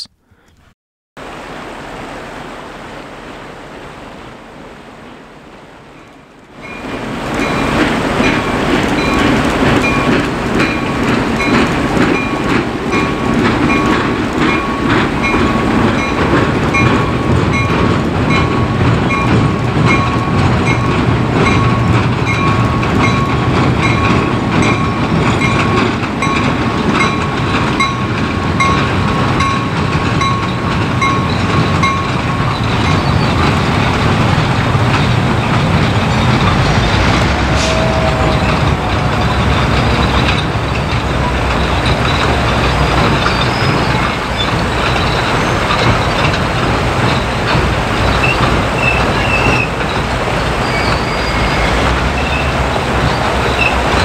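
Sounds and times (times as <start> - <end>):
passenger train passing: 1.2 - 54.0
wheels clicking over rail joints: 6.5 - 54.0
steady high tone: 35.7 - 41.3.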